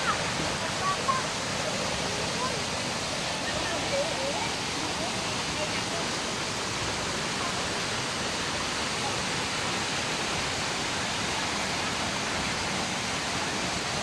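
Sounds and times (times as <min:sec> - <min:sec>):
waterfall rushing into pools: 0:00.0 - 0:14.0.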